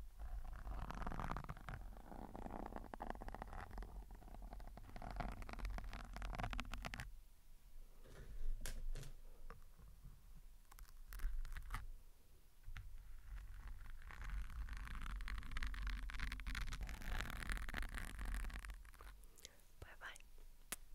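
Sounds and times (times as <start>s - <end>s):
fingertips scratching foam: 0.3s - 7.0s, 13.0s - 19.2s.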